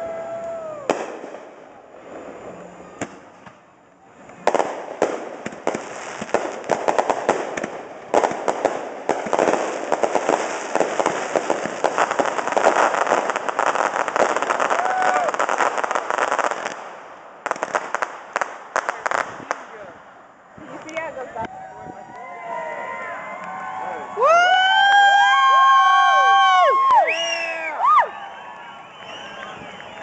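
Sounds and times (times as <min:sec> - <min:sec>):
fireworks bangs: 0:00.0 - 0:03.7, 0:04.4 - 0:21.2
fireworks crackling: 0:00.0 - 0:21.5.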